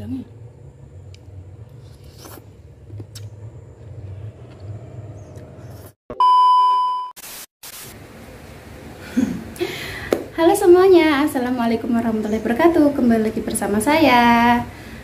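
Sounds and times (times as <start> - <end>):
high test tone beep: 6.1 - 7.1
tv static hiss: 7.2 - 8.0.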